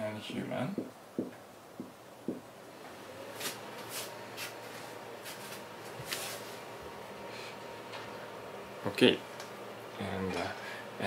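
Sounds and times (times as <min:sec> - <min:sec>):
faint room hum: 0:00.0 - 0:11.0
clothing rustle: 0:03.2 - 0:06.8.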